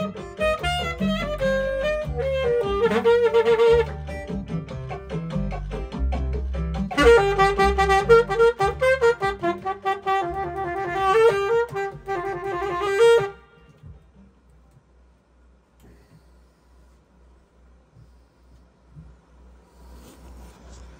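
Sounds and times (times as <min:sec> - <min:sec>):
alto saxophone melody: 0:00.0 - 0:04.7, 0:06.8 - 0:14.1
low bass accompaniment: 0:00.0 - 0:14.5.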